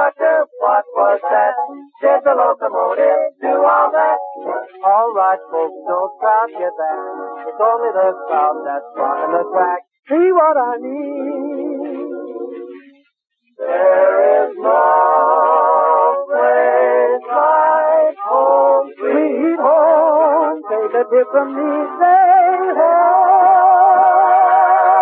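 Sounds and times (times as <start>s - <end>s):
singing with vibrato on old recording: 0.0s - 25.0s.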